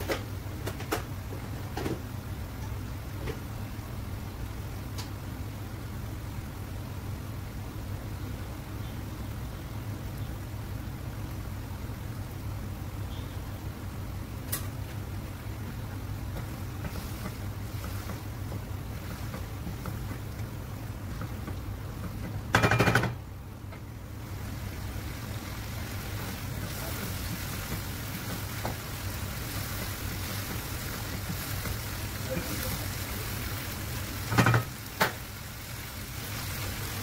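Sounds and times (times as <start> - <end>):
gas stove hum and hiss: 0.0 - 37.0
wooden spoon stirring pan: 14.9 - 22.6, 24.2 - 37.0.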